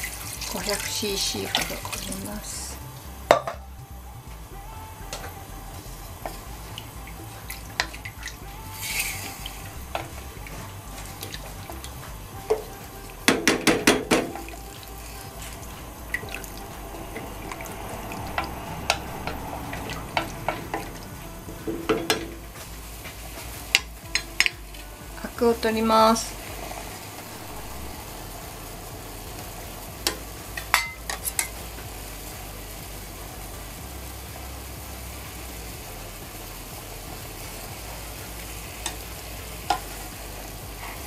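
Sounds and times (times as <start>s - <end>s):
broth simmering in a saucepan: 0.0s - 41.0s
short hiss: 6.3s - 21.1s
spatula knocking against pot: 13.3s - 14.5s.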